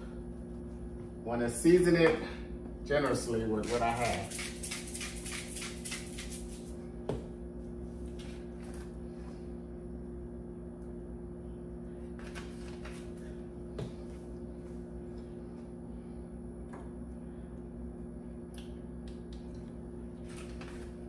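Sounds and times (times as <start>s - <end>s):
steady low hum: 0.0s - 21.0s
spice shaker rattling: 3.9s - 6.7s.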